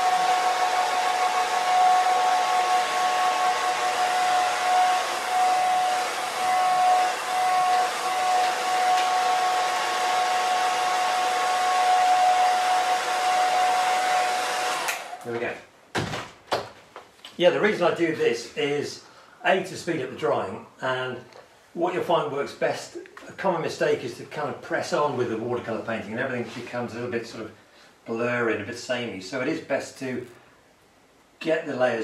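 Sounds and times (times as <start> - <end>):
hairdryer blowing with whine: 0.0 - 15.3.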